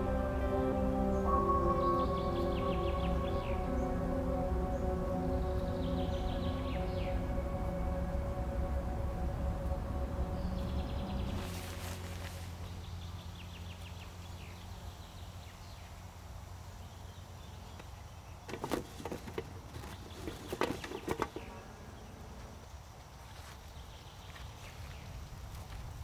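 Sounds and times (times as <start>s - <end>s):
faint high chirping: 0.0s - 16.1s
steady low hum: 0.0s - 18.4s.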